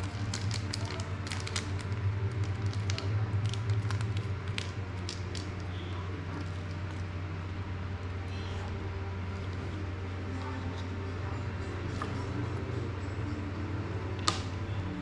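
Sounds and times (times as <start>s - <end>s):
plastic bag rustling: 0.0s - 7.2s
steady low hum: 0.0s - 15.0s.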